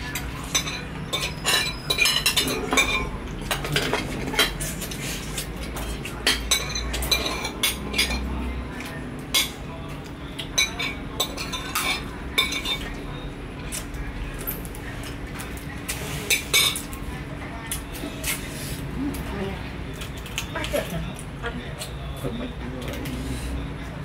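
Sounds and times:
spoons and dishes clinking: 0:00.0 - 0:09.6, 0:10.4 - 0:13.0.

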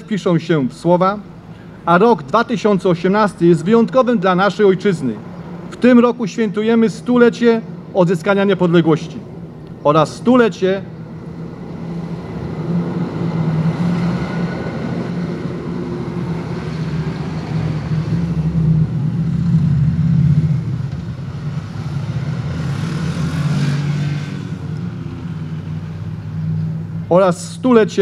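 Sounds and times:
truck diesel engine passing: 0:00.0 - 0:27.8.

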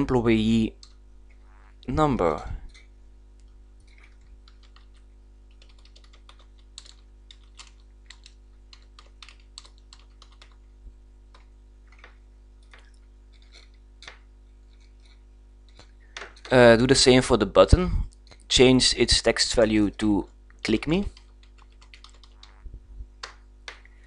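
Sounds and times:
low hum: 0:00.0 - 0:05.5, 0:22.0 - 0:24.0.

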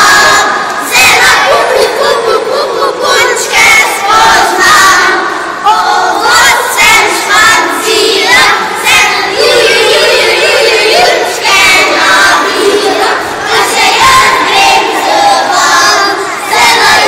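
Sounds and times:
children's voices overlapping: 0:00.0 - 0:17.0.

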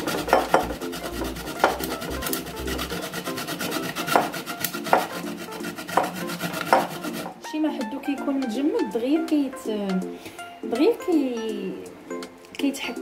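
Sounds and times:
peel grated on metal grater: 0:00.0 - 0:07.4.

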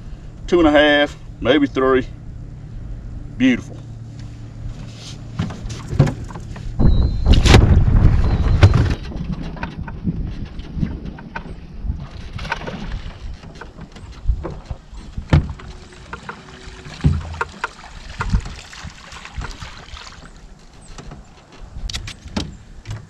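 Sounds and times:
knocks and thumps on boat: 0:04.7 - 0:23.0
wind buffeting microphone: 0:06.0 - 0:20.4, 0:21.2 - 0:23.0.

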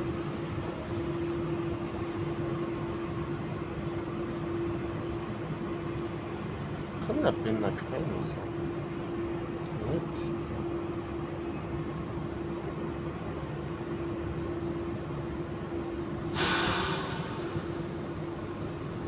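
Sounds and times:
compressed air hiss: 0:16.3 - 0:17.7.

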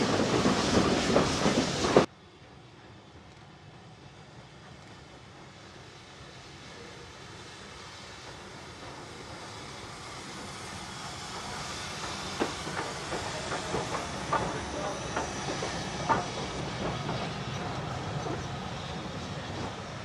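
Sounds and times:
steam locomotive hissing: 0:00.0 - 0:02.1, 0:03.9 - 0:20.0
wheels clacking over rail joints: 0:11.3 - 0:19.9.

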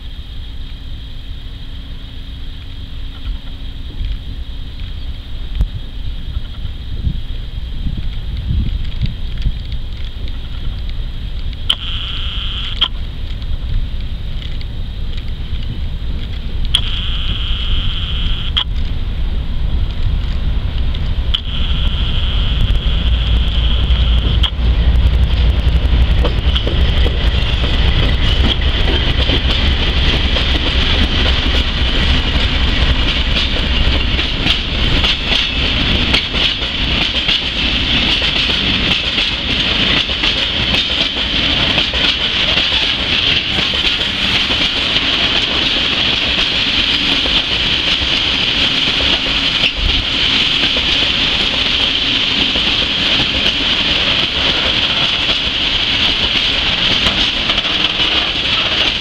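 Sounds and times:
locomotive rumble: 0:00.0 - 0:59.0
train wheels clacking on rail joints: 0:24.0 - 0:59.0.

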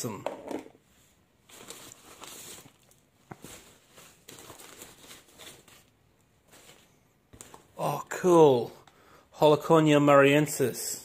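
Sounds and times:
paper packing rustling: 0:01.4 - 0:08.0.

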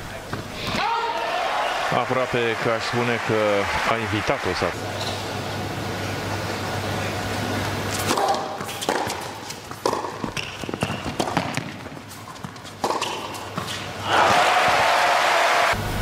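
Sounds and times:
crowd applauding and cheering: 0:00.8 - 0:04.8, 0:14.0 - 0:15.8
racket striking tennis ball: 0:07.9 - 0:13.8.

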